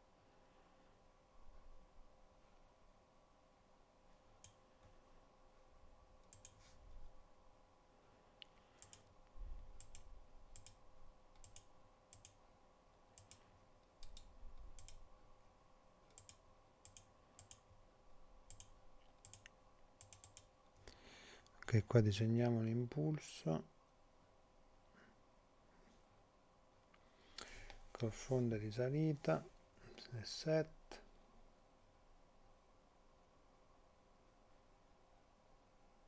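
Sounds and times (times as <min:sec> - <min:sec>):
faint steady hum: 0:00.0 - 0:36.0
computer mouse clicks: 0:04.4 - 0:04.6, 0:06.2 - 0:06.7, 0:08.4 - 0:12.4, 0:13.1 - 0:15.1, 0:16.1 - 0:17.8, 0:18.5 - 0:20.5.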